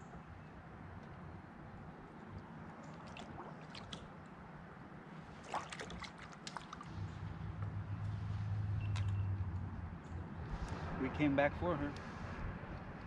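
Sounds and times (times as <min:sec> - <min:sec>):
light water splashes and drips: 0:02.3 - 0:04.4, 0:05.3 - 0:07.7, 0:08.8 - 0:09.2.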